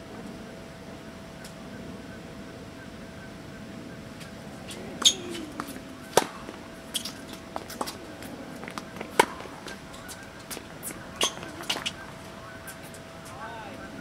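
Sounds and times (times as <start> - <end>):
tennis ball struck by rackets: 5.0 - 8.0, 8.6 - 9.8, 10.8 - 12.0.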